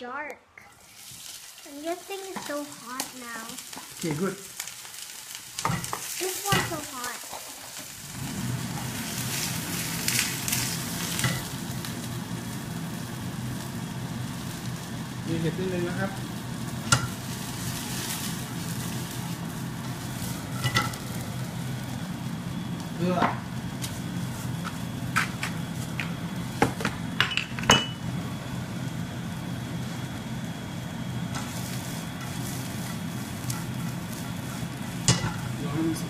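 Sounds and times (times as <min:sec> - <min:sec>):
mushrooms sizzling in a pan: 0:00.6 - 0:36.0
utensils clinking on pan: 0:05.6 - 0:06.8, 0:20.5 - 0:21.0, 0:27.2 - 0:28.0, 0:35.0 - 0:35.5.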